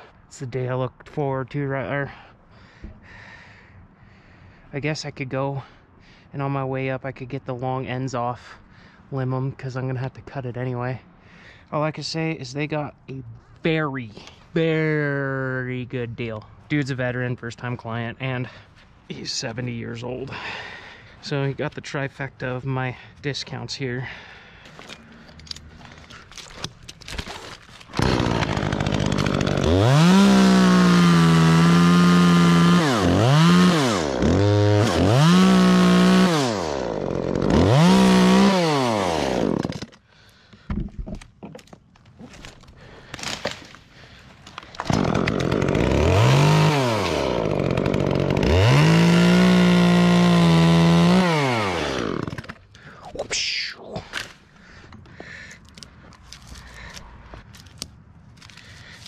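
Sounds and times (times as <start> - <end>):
chainsaw revving and cutting: 27.8 - 39.9, 44.7 - 52.6.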